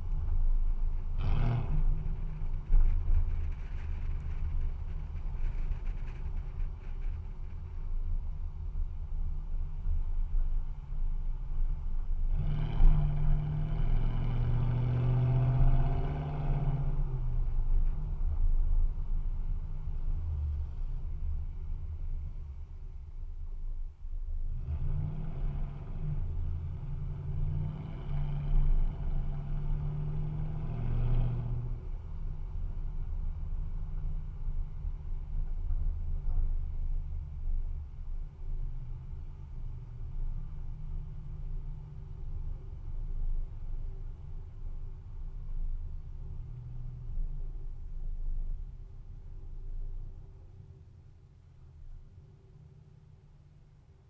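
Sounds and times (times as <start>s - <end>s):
truck engine through straight-pipe exhaust: 0.0s - 54.0s.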